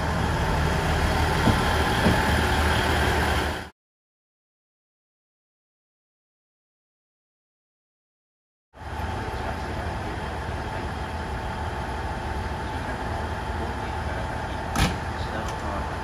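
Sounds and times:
diesel railcar idling: 0:00.0 - 0:03.7, 0:08.8 - 0:16.0.

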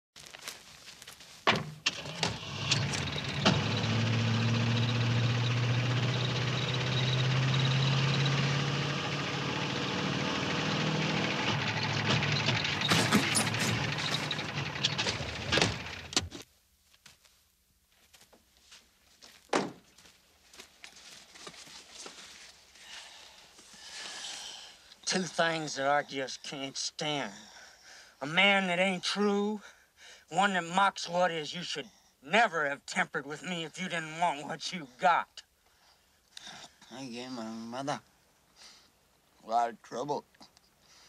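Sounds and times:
road noise: 0:01.8 - 0:16.4
car engine running: 0:01.9 - 0:16.3.

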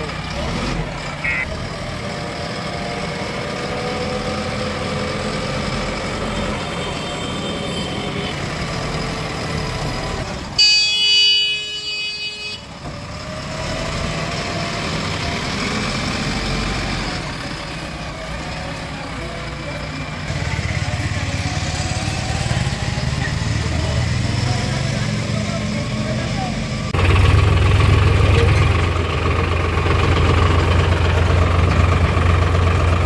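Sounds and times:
diesel engine running: 0:00.0 - 0:10.6, 0:12.7 - 0:33.0
loud vehicle horn: 0:01.2 - 0:01.5, 0:06.6 - 0:08.4, 0:10.6 - 0:12.7.

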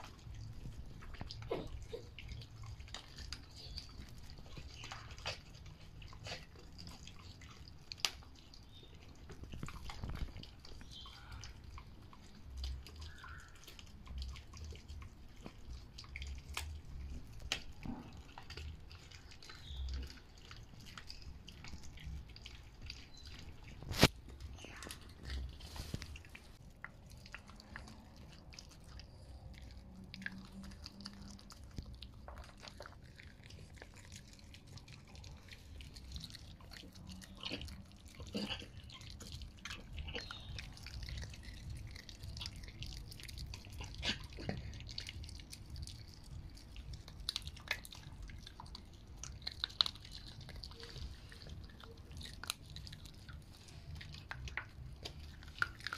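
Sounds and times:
bones cracking: 0:00.0 - 0:55.9
dogs chewing bones: 0:00.0 - 0:55.9.

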